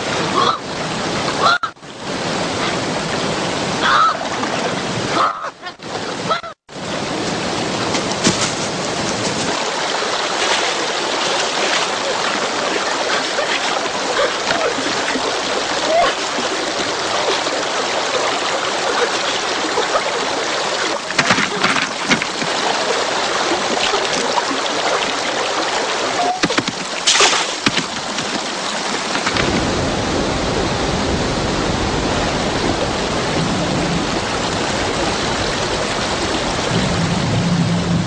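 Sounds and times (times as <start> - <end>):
running water rushing: 0.0 - 38.0
deep rumble: 29.3 - 38.0.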